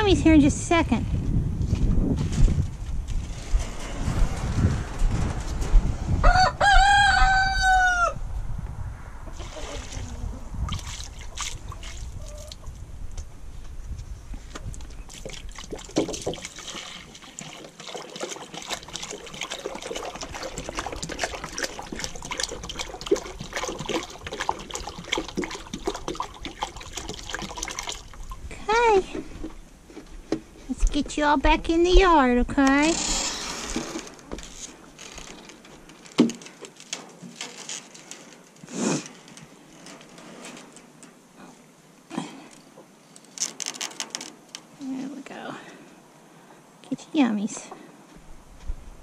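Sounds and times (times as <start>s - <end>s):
rooster crowing: 6.2s - 8.2s
water pouring from plastic jug: 9.4s - 12.6s, 15.1s - 28.5s.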